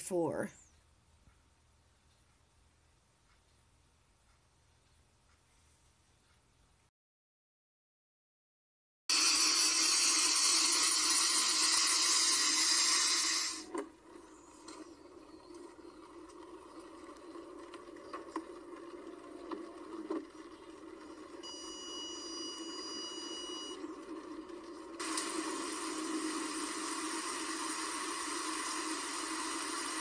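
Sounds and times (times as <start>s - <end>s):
faint clicks: 0.6s - 6.9s
high electronic beep: 21.4s - 23.8s.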